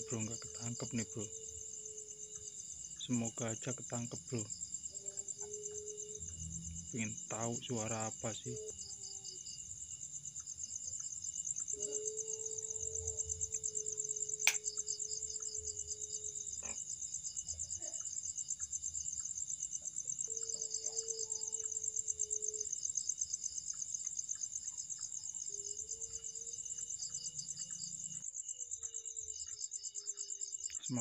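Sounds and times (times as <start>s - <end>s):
crickets chirping: 0.0s - 31.0s
sharp click: 14.4s - 14.7s.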